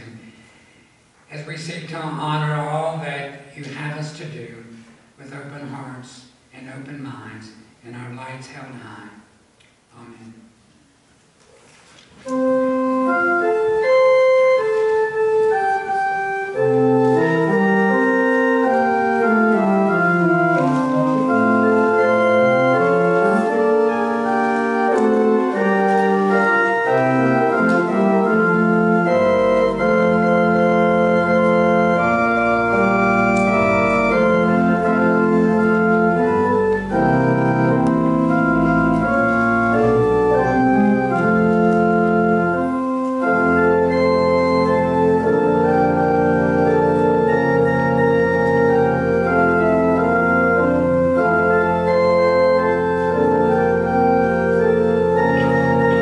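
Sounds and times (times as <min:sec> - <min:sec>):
church organ playing chords: 0:12.2 - 0:56.0
deep organ pedal notes: 0:12.2 - 0:56.0.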